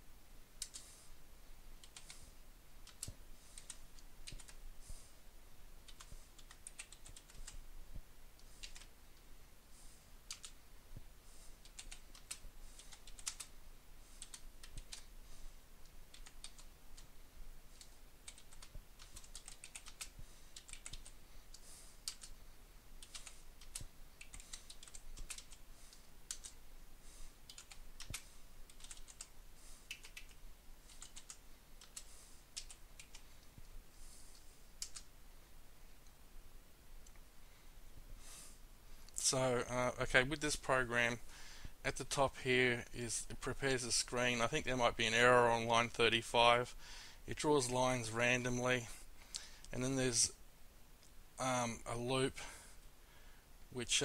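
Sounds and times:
typing on computer keyboard: 1.8 - 2.2, 2.8 - 4.6, 5.9 - 7.6, 8.6 - 8.9, 10.3 - 10.6, 11.6 - 13.5, 14.2 - 15.1, 16.1 - 17.1, 17.7 - 22.4, 23.0 - 25.6, 26.3 - 26.6, 27.5 - 29.3, 29.9 - 33.2, 34.8 - 35.1.

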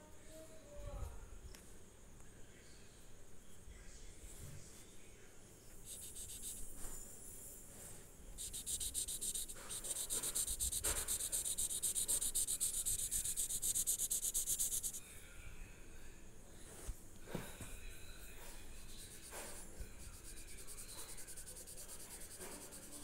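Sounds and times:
blending stump scrubbing paper: 8.4 - 15.0, 18.8 - 23.0.

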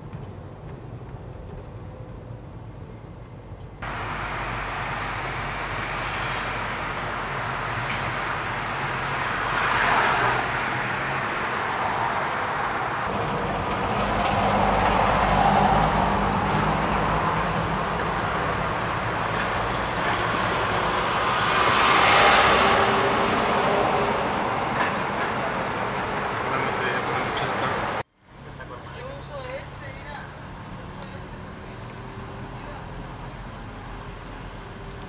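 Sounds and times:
car tyre and engine hum: 0.0 - 35.0.

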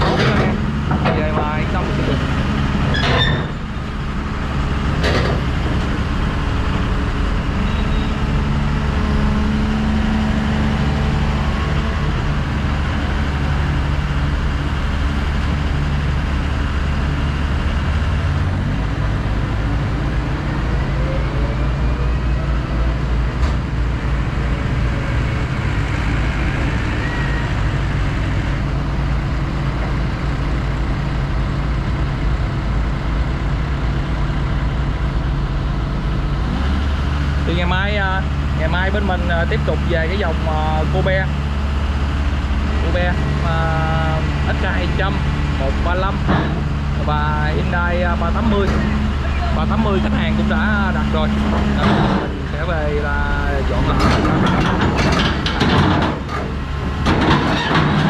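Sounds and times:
sharp knocks: 0.0 - 2.3, 46.2 - 46.7
diesel excavator engine idling: 0.0 - 58.0.

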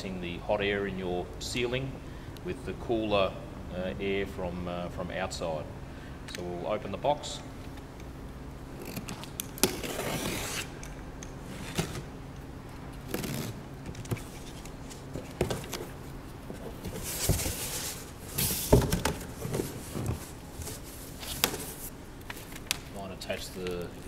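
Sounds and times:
knife slitting packing tape: 8.8 - 10.8, 13.1 - 13.6.

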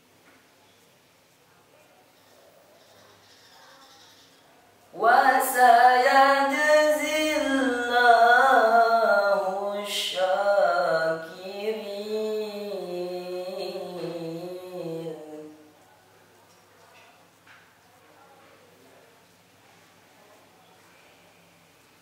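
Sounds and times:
boy reciting melodically: 4.9 - 15.8.

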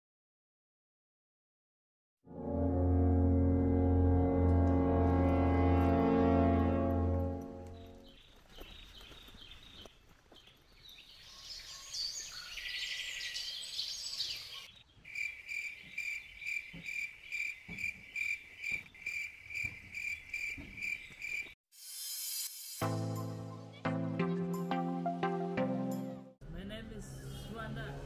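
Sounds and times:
insects chirping: 14.4 - 21.5.

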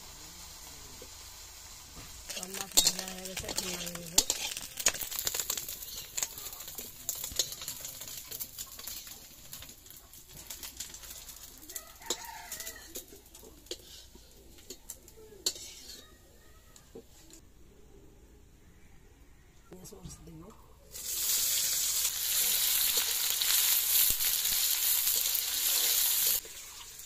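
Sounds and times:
fish sizzling: 0.0 - 16.1, 20.9 - 27.0
metal spatula scraping a pan: 2.3 - 16.2, 21.3 - 27.0.

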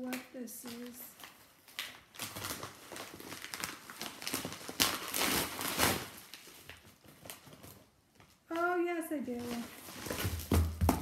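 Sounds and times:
paper envelope tearing and crinkling: 0.8 - 7.9.

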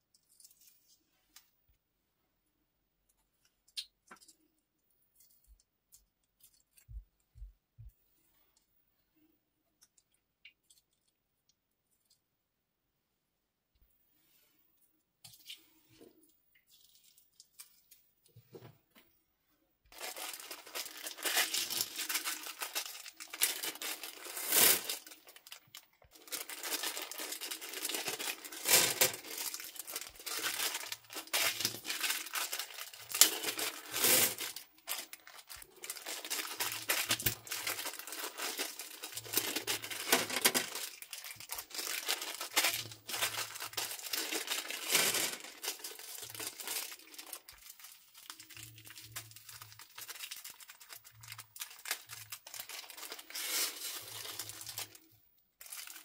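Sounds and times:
soft handling sounds: 0.0 - 1.9, 13.8 - 19.6
plastic bags crinkling and tearing: 19.9 - 56.0.

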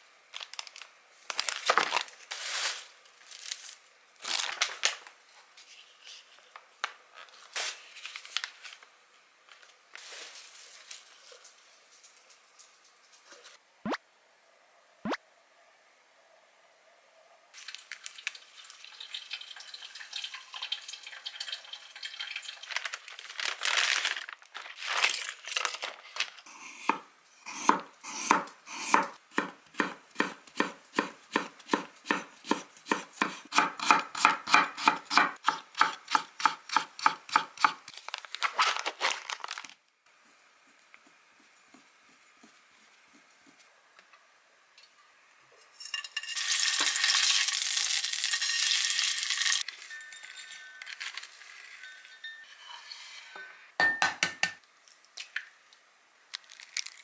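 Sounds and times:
knife slicing carrot on board: 26.7 - 37.8
sausage sizzling in frying pan: 46.2 - 49.7.

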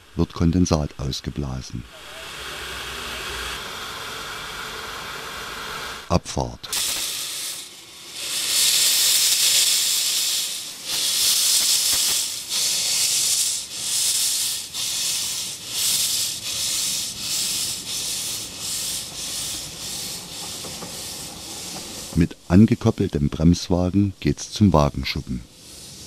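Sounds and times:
steam locomotive chuffing: 1.8 - 6.1, 6.7 - 23.5.

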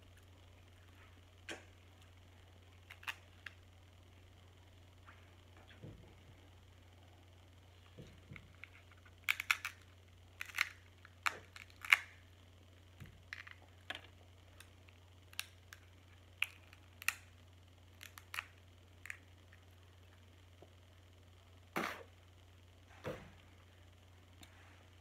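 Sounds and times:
faint low hum: 0.0 - 25.0
crab shell clicking and snapping: 2.8 - 3.6, 8.6 - 12.2, 16.4 - 17.3, 18.0 - 19.3.

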